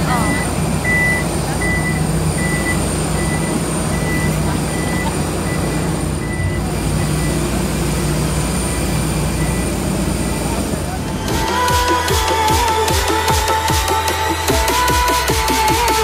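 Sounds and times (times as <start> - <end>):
vehicle engine noise: 0.0 - 16.0
reversing alarm beeps: 0.1 - 8.1, 8.7 - 9.7.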